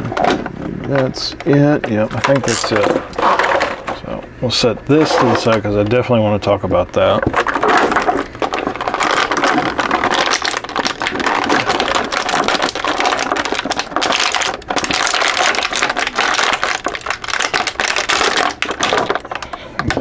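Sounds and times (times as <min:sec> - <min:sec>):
plastic tray crinkling and crackling: 0:00.2 - 0:04.2, 0:04.9 - 0:20.0.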